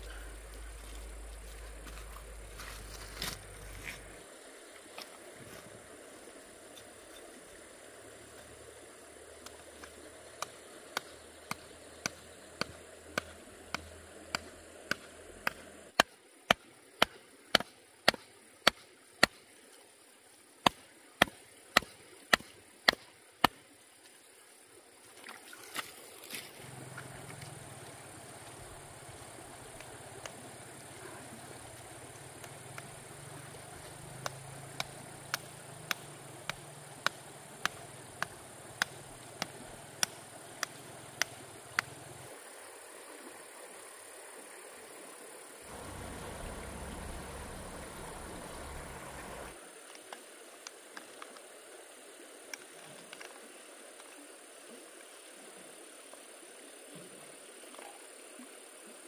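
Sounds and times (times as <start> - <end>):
sharp blows on bamboo: 10.4 - 19.4, 20.6 - 23.6, 34.2 - 41.9.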